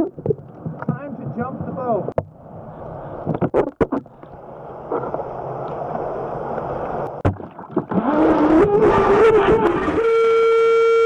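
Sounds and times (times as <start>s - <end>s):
rushing water: 3.0s - 10.6s.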